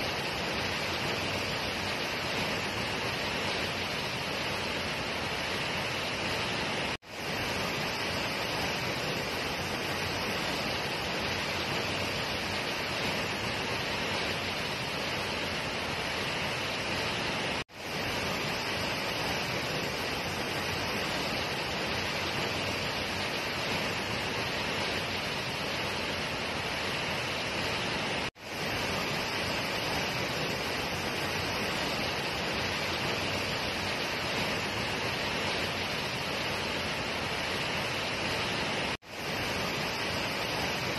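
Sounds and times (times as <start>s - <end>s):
waterfall rushing into pool: 0.0s - 40.9s.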